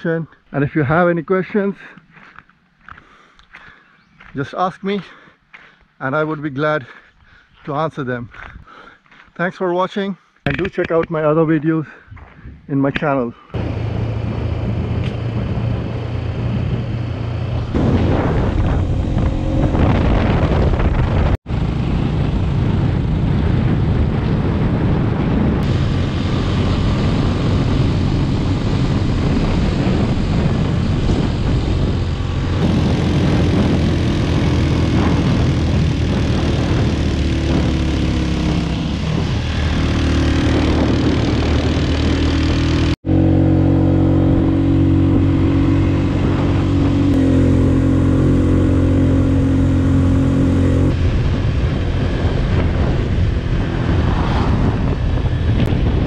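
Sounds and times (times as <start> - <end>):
wind and road noise: 0.0 - 56.0
motorcycle engine running: 13.6 - 56.0.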